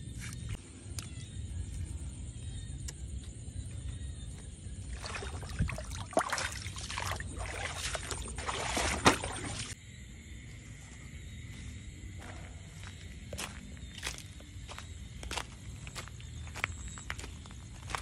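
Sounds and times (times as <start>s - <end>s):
water splashing and dripping: 4.8s - 9.8s.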